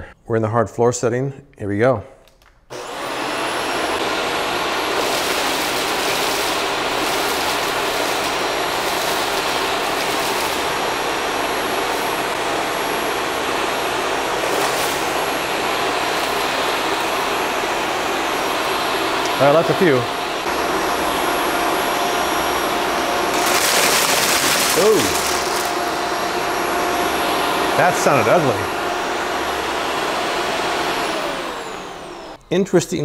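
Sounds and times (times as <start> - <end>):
vacuum cleaner motor whine: 2.7 - 32.7
crackles of cereal sucked up: 23.4 - 25.8.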